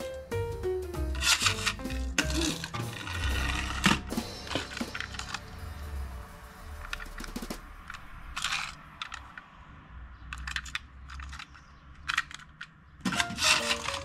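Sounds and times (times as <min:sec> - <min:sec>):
toy handling clicks and taps: 0:01.1 - 0:03.1, 0:07.9 - 0:09.5, 0:10.3 - 0:14.0.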